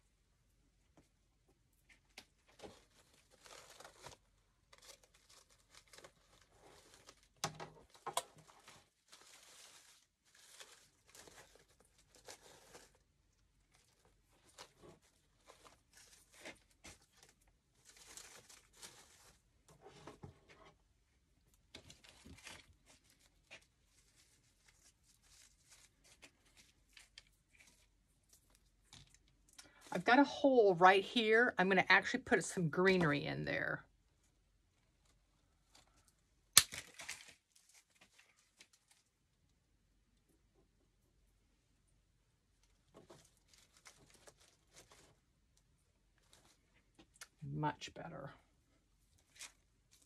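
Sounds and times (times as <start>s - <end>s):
artificial flower stems rustling: 1.0s - 31.4s, 34.2s - 39.4s, 42.4s - 50.0s.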